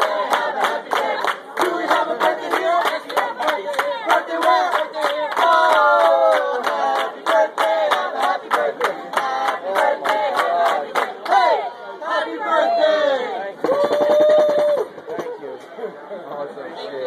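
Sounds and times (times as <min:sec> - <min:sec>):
people clapping in rhythm: 0:00.0 - 0:11.7
group singing birthday song: 0:00.0 - 0:13.3.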